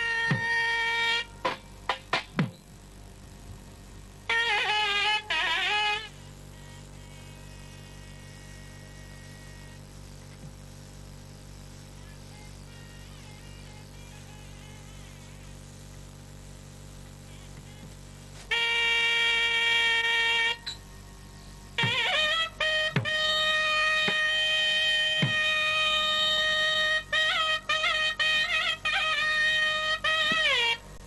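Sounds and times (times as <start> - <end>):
wind instrument steady note: 0.0 - 2.3, 3.0 - 9.8, 17.3 - 31.0
low electrical hum: 0.0 - 31.0.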